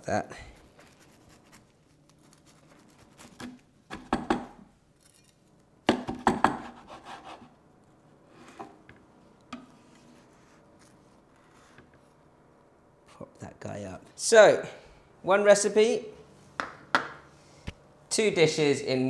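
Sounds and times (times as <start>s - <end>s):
knife crunching through toasted sandwich: 0.6s - 3.6s.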